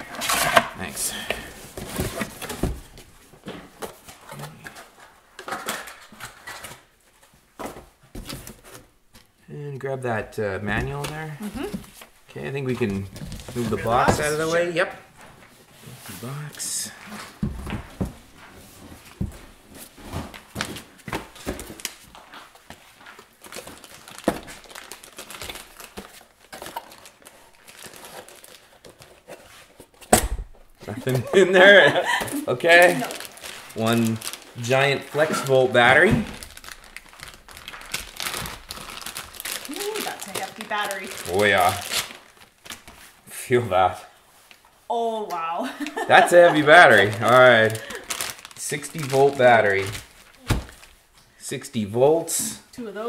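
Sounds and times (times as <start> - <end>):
cardboard rustling and scraping: 0.0 - 5.0
plastic bag crinkling: 21.7 - 28.9, 32.1 - 43.1, 46.0 - 51.0.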